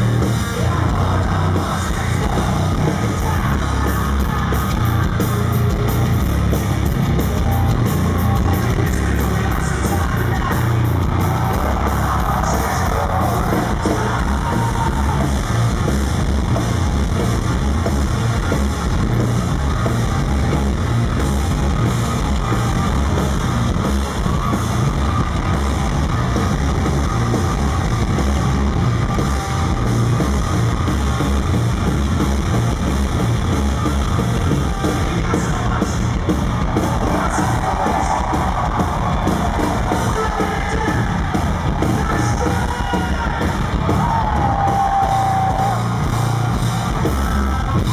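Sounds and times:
live hard rock band: 0.0 - 47.9
shouted vocals: 8.6 - 15.5, 36.6 - 46.5.

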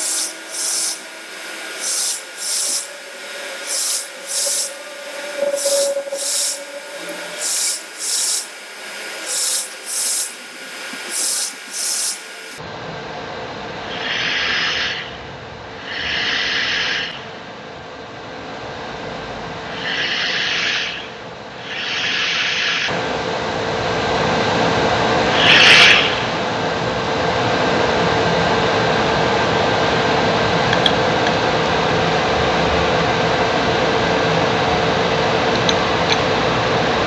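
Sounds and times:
printer stepper motors moving: 0.0 - 12.6
steady hum: 0.0 - 16.1.

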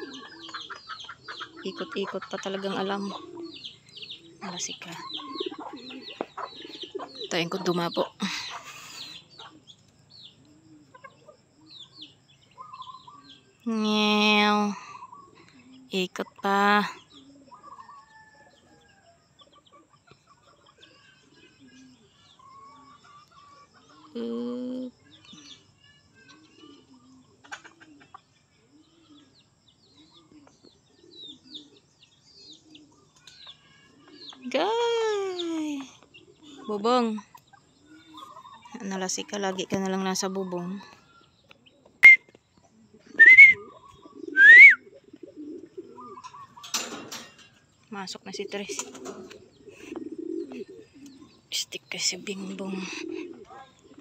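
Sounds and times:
chickens clucking: 0.0 - 54.0
faint bird chirps: 0.0 - 54.0
pigeons cooing: 0.0 - 54.0
person whistling: 42.0 - 42.2, 43.2 - 43.6, 44.4 - 44.8.

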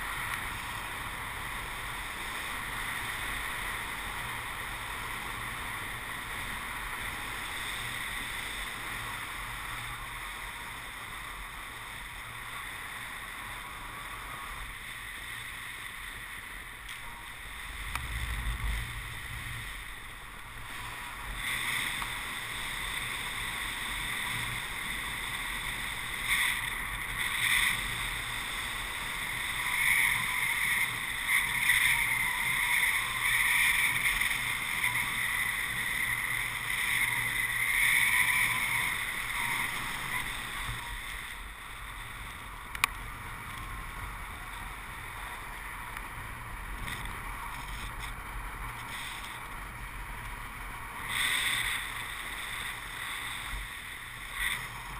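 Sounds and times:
wind rushing over microphone: 16.6 - 54.9.

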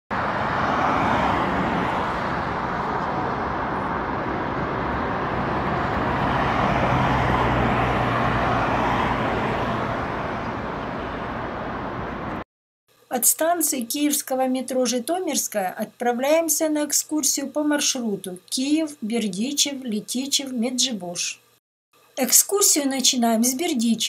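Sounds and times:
passing vehicle engine hum: 0.1 - 12.4
road traffic noise: 0.1 - 12.5.

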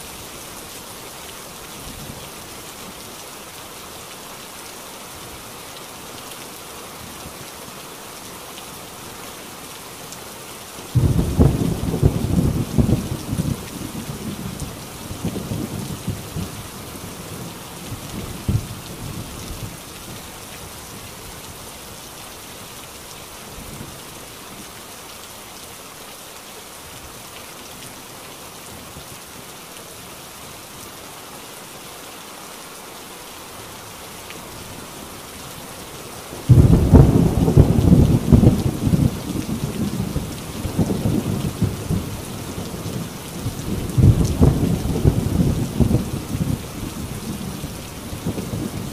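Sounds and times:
rain on a tin roof: 0.0 - 48.9
thunder rumbling: 11.0 - 16.6, 36.4 - 48.9
loud thunderclap: 36.5 - 40.1, 44.0 - 46.6.

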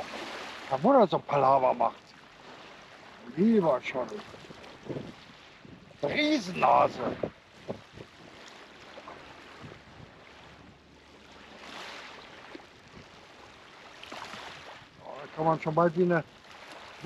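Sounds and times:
river water washing at bank: 0.0 - 17.0
wind rushing: 6.0 - 7.8.

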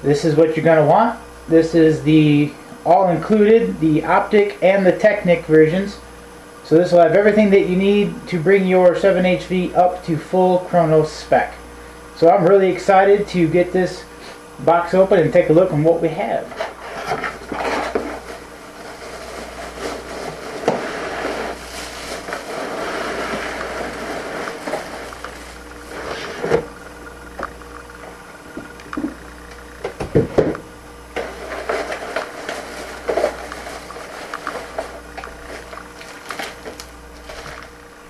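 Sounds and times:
plastic and paper rustling: 16.5 - 26.6, 31.2 - 37.8
low hum: 16.7 - 38.0.

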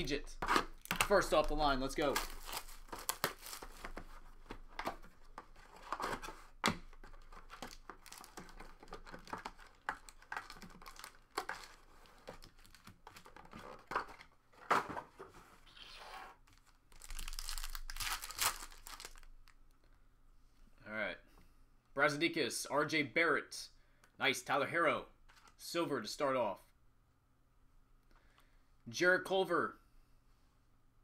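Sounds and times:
foil wrappers crinkling and tearing: 0.8 - 4.0, 7.0 - 13.8, 16.5 - 19.6.

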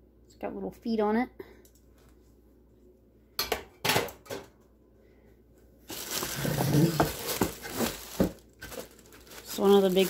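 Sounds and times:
plastic wrap and cardboard rustling: 5.8 - 10.0.

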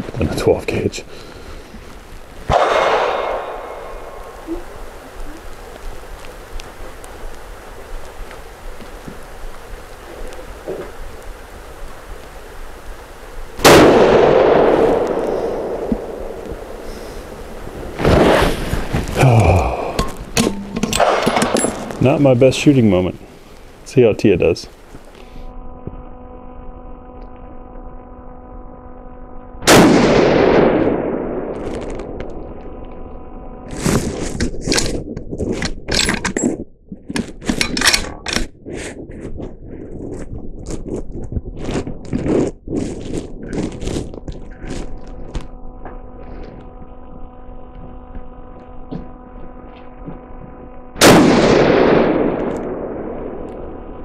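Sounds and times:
steady hum: 0.0 - 54.0
rifle shot: 2.5 - 4.4, 13.6 - 16.8, 20.4 - 21.6, 29.6 - 32.2, 51.0 - 53.5.

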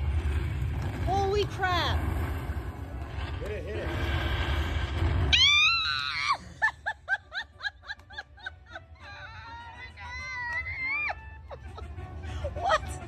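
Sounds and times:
woman screaming excitedly: 5.3 - 6.7, 9.0 - 11.2.

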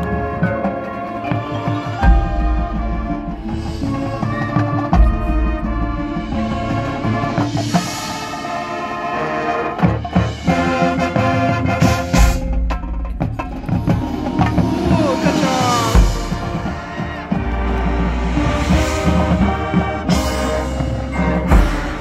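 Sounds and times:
mallet percussion: 0.0 - 8.9, 9.8 - 22.0
timpani: 0.0 - 22.0
brass chords: 5.5 - 22.0
deep low drum hits: 12.3 - 20.2.

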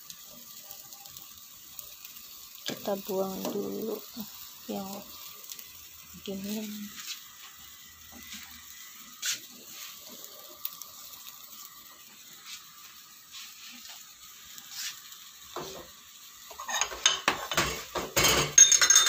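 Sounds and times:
pot boiling with steady hiss: 0.0 - 19.0
metal pots clattering: 16.5 - 19.0.

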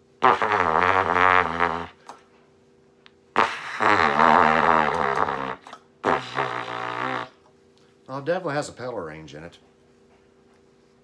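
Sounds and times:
low buzzy cornet notes: 3.4 - 7.4.

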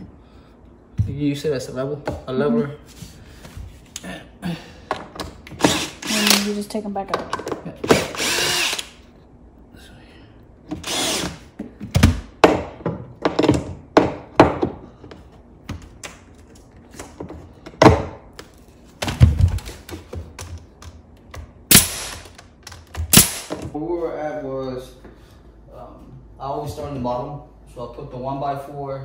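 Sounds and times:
cordless drill running: 5.5 - 6.5, 7.9 - 9.0, 10.8 - 11.5.

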